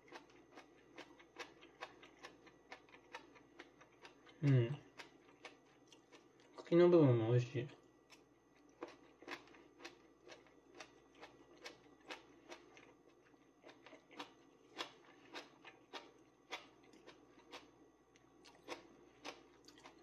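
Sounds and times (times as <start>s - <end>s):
person chewing: 0.0s - 6.6s, 8.1s - 20.0s.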